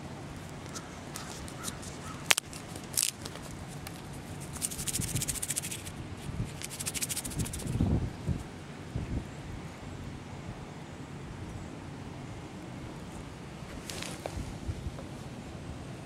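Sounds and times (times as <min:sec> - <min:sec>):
light crackling and scratching: 0:00.4 - 0:07.8, 0:13.0 - 0:15.1.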